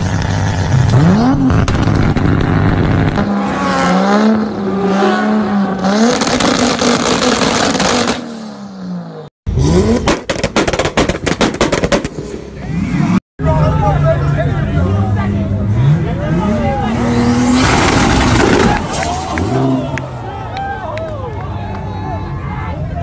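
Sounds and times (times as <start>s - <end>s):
car engines revving: 0.0s - 11.1s, 11.8s - 23.0s
exhaust pops and bangs: 9.9s - 12.2s.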